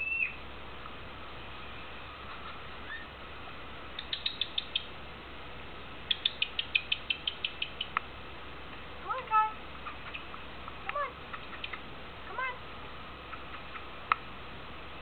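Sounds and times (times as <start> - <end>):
parrot clicking: 4.0 - 4.9, 6.1 - 8.1, 9.8 - 11.9.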